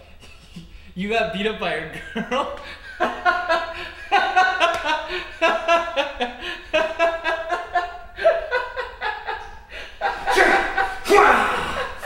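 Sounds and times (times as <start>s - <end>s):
man laughing hard: 1.9s - 12.0s.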